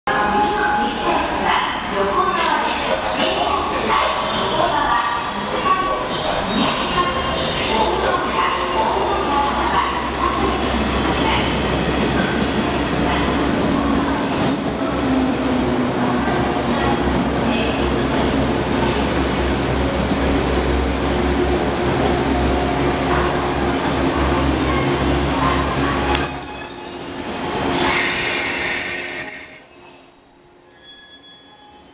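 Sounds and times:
train wheels rumbling on rails: 0:05.5 - 0:29.0
high train squeal: 0:26.1 - 0:31.9.

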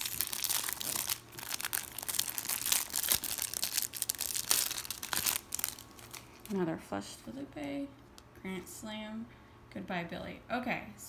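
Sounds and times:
plastic wrapper crinkling and tearing: 0:00.0 - 0:06.6.

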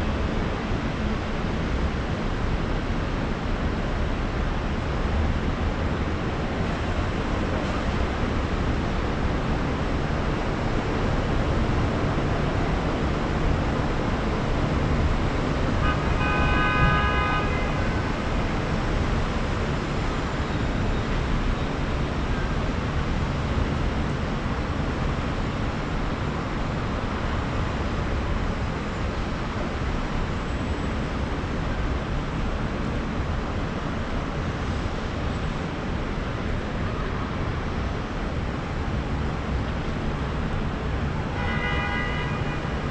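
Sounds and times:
city street traffic rush: 0:00.0 - 0:42.9
vehicle horn: 0:15.8 - 0:18.1, 0:41.3 - 0:42.8.

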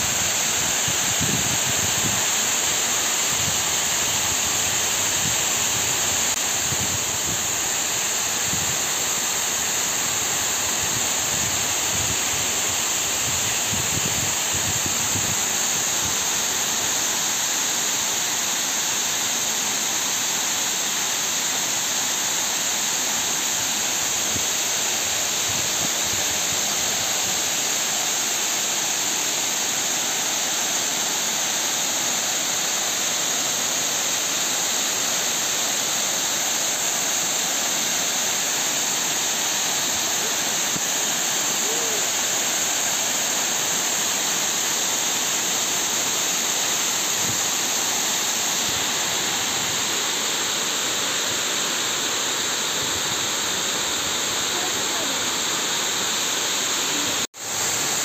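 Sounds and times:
water rushing over dam: 0:00.0 - 0:58.0.

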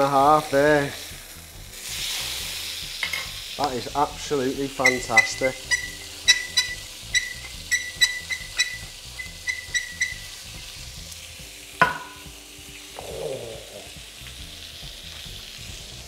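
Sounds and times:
steak sizzling on a griddle: 0:00.0 - 0:16.0
sharp ringing knock: 0:11.8 - 0:12.3.

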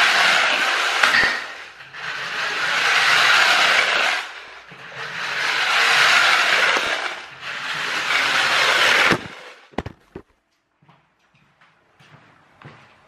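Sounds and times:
clockwork toy motor whirring: 0:00.0 - 0:09.6.

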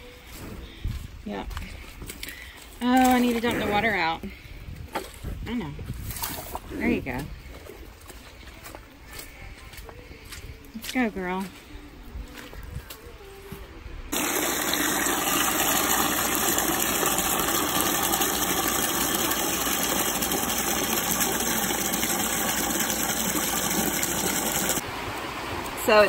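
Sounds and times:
hose spraying into plastic bucket: 0:14.1 - 0:24.8.

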